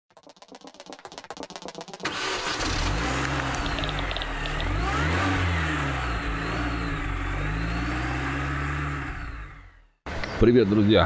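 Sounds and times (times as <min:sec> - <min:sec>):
car engine revving: 0:02.0 - 0:10.0.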